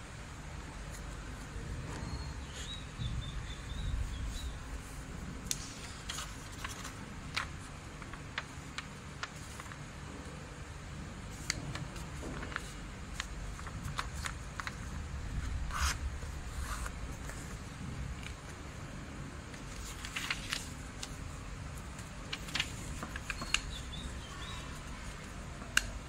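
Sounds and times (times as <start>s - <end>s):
low steady hum: 0.0s - 26.0s
paper rustling and crinkling: 4.8s - 10.0s, 11.3s - 18.8s, 19.5s - 25.9s.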